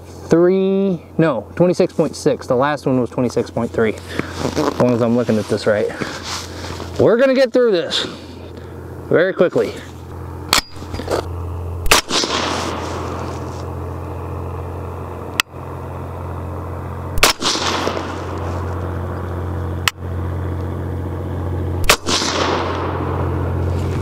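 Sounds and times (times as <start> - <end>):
gunshot echo: 11.8 - 12.8, 17.2 - 18.3, 21.8 - 23.2
suppressed rifle shots: 11.8 - 13.2, 17.2 - 18.4, 21.8 - 23.3.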